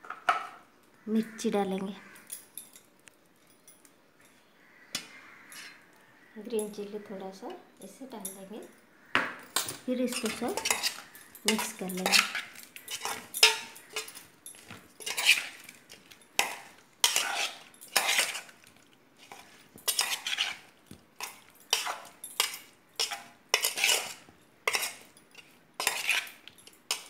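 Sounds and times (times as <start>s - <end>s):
metal spoon scraping a metal pot: 5.4s - 5.8s, 9.6s - 18.6s, 19.2s - 27.0s.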